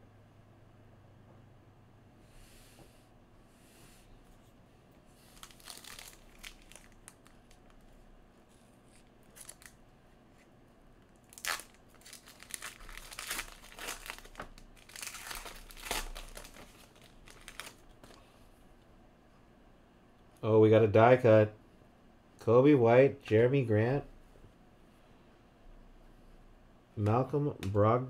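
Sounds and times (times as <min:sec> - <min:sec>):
foil wrapper crinkling: 0:05.2 - 0:07.9, 0:08.9 - 0:09.8, 0:11.1 - 0:18.2.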